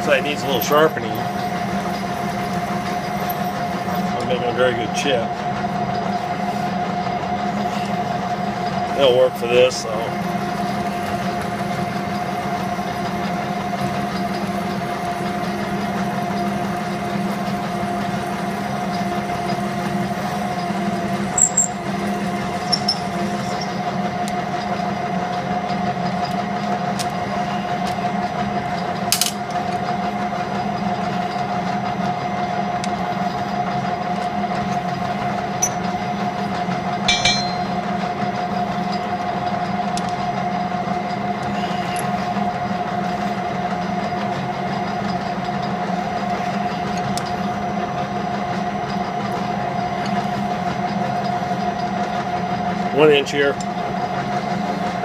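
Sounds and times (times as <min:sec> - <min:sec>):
metal lathe whining: 0:00.0 - 0:29.0.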